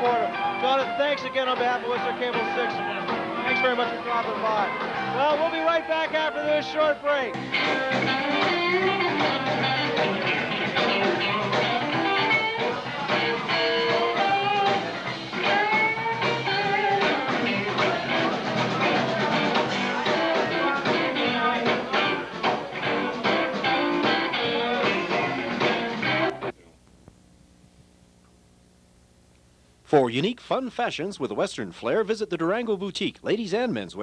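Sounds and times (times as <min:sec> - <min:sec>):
electric guitar: 0:00.0 - 0:06.7, 0:07.3 - 0:26.6
rock band playing: 0:00.0 - 0:26.5.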